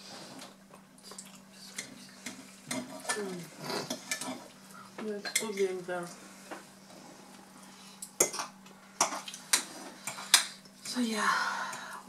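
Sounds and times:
cutlery scraping plates: 1.8 - 4.5.

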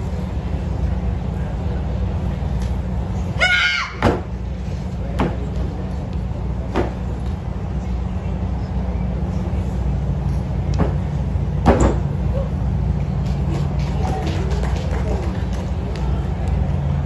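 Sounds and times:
steady low rumble: 0.0 - 17.0
woman shouting: 3.4 - 4.0.

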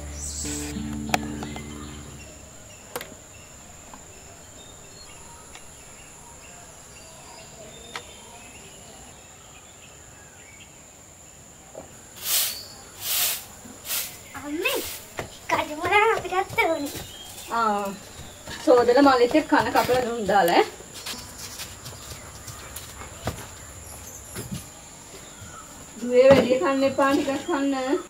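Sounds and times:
broom sweeping dirt ground: 0.0 - 2.2, 12.2 - 18.1, 19.0 - 22.1
background music: 0.0 - 2.9
high insect drone: 0.0 - 28.0.

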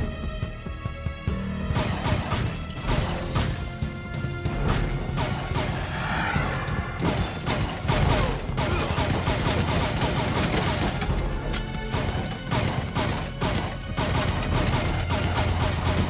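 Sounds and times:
dramatic music score: 0.0 - 16.0
rapid handgun fire: 1.7 - 3.6, 5.1 - 5.9, 7.0 - 11.2, 11.8 - 16.0.

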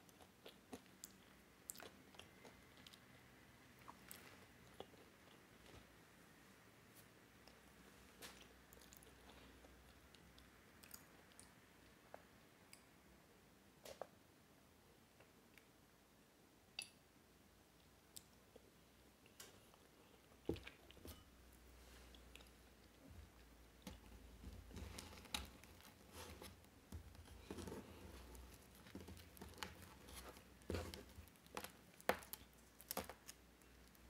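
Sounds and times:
pastry crackling and tearing: 27.3 - 34.0.

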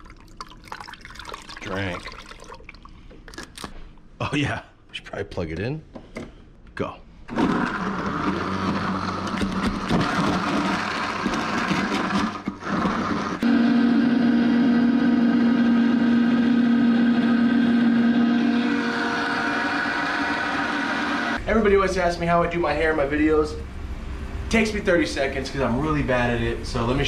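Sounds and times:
blender running: 7.3 - 21.4.

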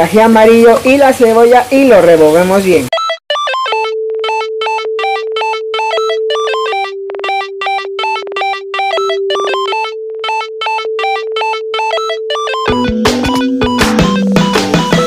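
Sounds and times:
repeating synthesizer notes: 2.9 - 15.0
held synth tone: 3.0 - 15.0.

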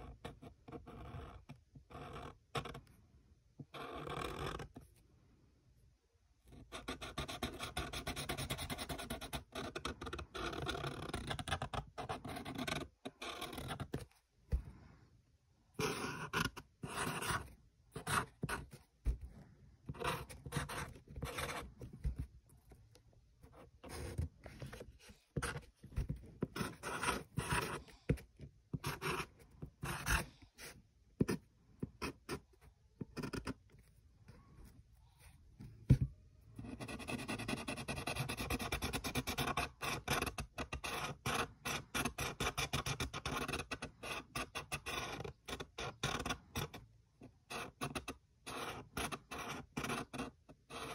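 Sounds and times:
marker scratching on paper: 15.8 - 19.2, 19.9 - 22.2, 23.8 - 31.4, 36.7 - 46.8, 47.5 - 50.9.

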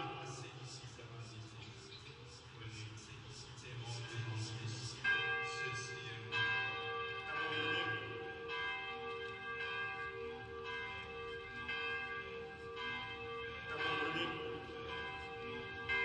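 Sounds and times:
bell-like tones ringing: 3.9 - 16.0.

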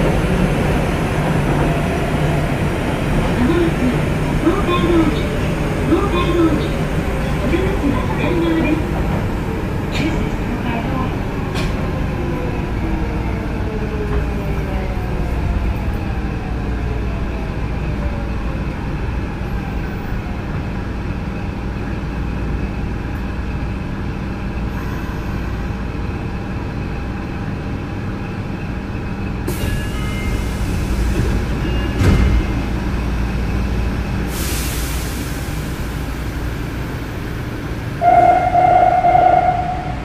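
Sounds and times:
train running noise: 0.0 - 40.0
air brakes hissing: 34.3 - 36.2.

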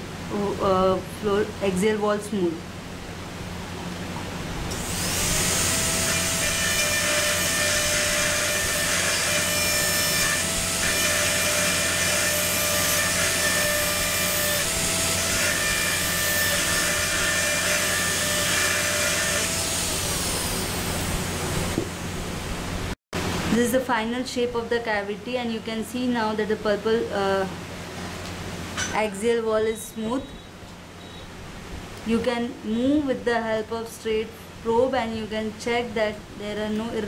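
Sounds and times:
dental drill whining: 4.7 - 21.1.

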